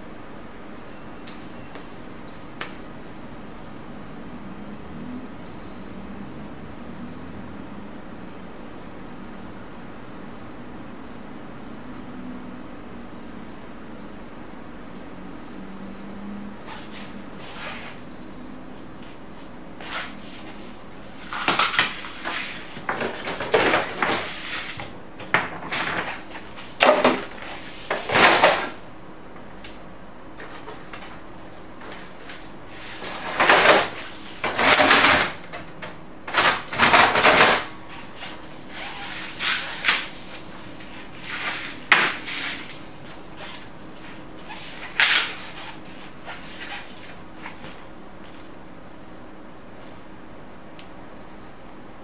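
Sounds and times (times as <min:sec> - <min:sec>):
paper rustling and sliding: 0:16.6 - 0:18.2, 0:18.8 - 0:24.9, 0:25.5 - 0:28.8, 0:31.8 - 0:35.5, 0:36.4 - 0:48.5.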